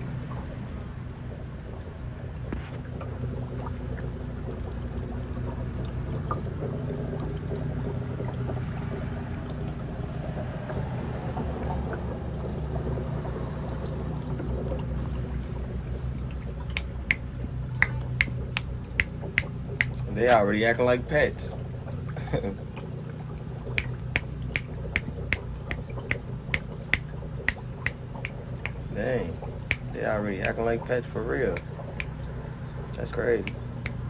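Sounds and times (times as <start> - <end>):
low mechanical hum: 0.0 - 34.0
water pouring and trickling: 0.0 - 34.0
finger snaps: 16.7 - 20.1, 23.7 - 28.9, 29.7 - 30.7, 33.4 - 34.0.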